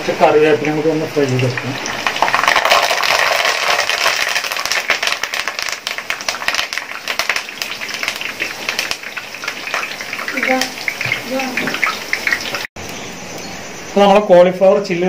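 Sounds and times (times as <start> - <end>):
leaves deep-frying in oil: 0.0 - 15.0
sharp pops of frying oil: 1.4 - 12.7.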